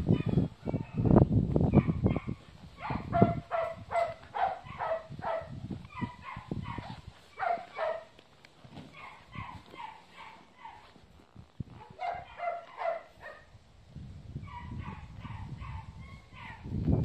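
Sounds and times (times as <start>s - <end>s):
dog barking: 0.1s - 1.0s, 1.7s - 8.1s, 8.9s - 10.9s, 11.8s - 13.5s, 14.4s - 16.7s.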